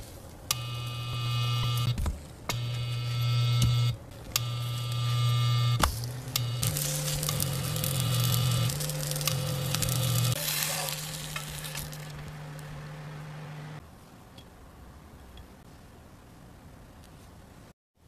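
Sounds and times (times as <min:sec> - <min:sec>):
electric cooktop humming: 0:00.0 - 0:13.8
batter sizzling in a pan: 0:05.8 - 0:12.7.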